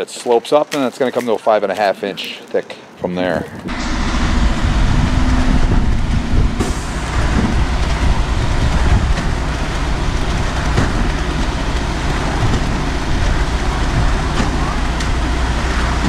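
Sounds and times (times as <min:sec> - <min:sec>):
concrete mixer truck rumbling: 0:03.7 - 0:16.0
wet concrete pouring down chute: 0:03.7 - 0:16.0.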